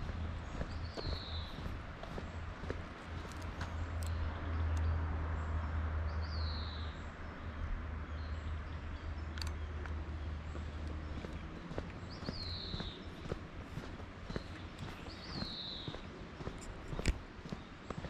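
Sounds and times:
footsteps on paved road: 0:00.0 - 0:04.3, 0:09.6 - 0:18.0
steady low rumble: 0:00.0 - 0:04.9.

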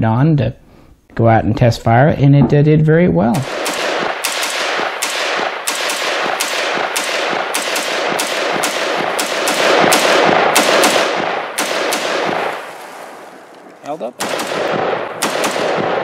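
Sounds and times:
rapid pistol gunshots: 0:03.4 - 0:13.5, 0:14.2 - 0:16.0.

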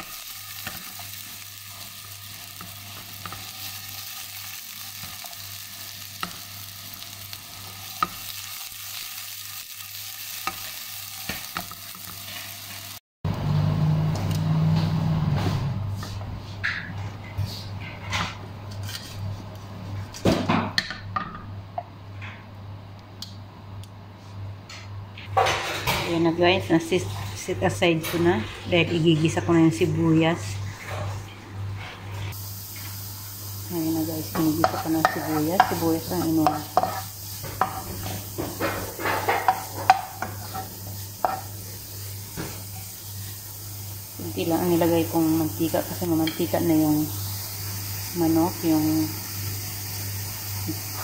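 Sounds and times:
food frying in oil: 0:00.0 - 0:13.0, 0:32.3 - 0:51.0
metal utensil scraping frying pan: 0:34.5 - 0:41.5.

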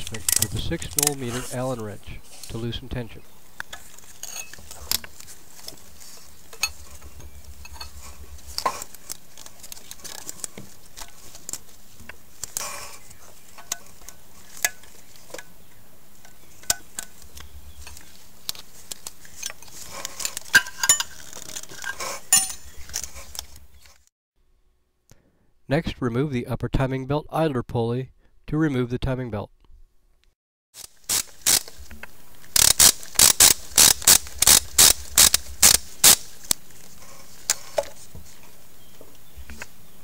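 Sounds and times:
hand tools clinking on metal: 0:19.6 - 0:23.1.

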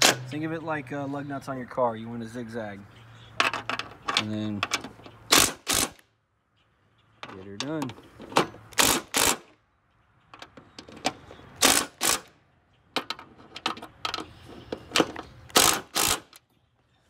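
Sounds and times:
impact driver hammering: 0:05.3 - 0:06.0, 0:08.8 - 0:09.5, 0:11.6 - 0:12.3, 0:15.5 - 0:16.4.

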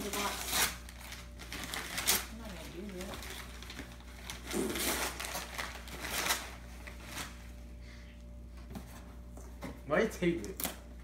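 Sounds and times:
packing tape tearing: 0:00.0 - 0:07.4.

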